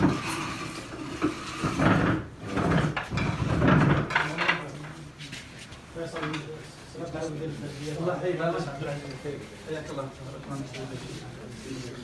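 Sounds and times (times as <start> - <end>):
office chairs knocking: 1.2 - 4.8.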